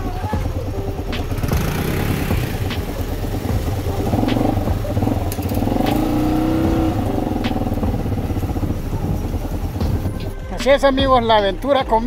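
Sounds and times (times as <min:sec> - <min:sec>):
vehicle engine running: 0:00.0 - 0:11.7
sharp clicks: 0:04.0 - 0:07.9.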